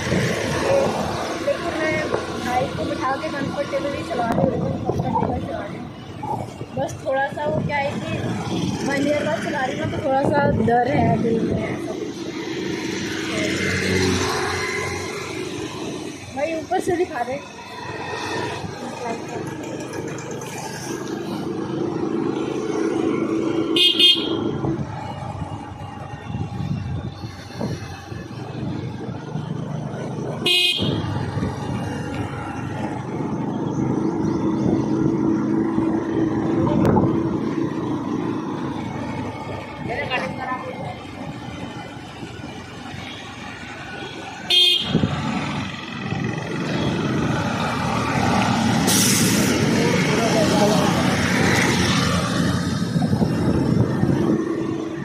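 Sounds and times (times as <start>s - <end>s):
scooter engine and road hum: 0.0s - 55.0s
scooter horn beep: 23.8s - 24.5s, 30.5s - 31.1s, 44.5s - 45.0s.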